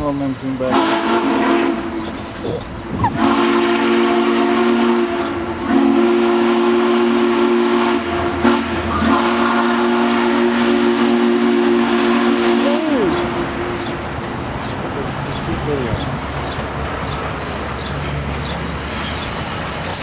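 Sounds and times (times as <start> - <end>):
steam locomotive chime whistle: 3.2 - 13.1.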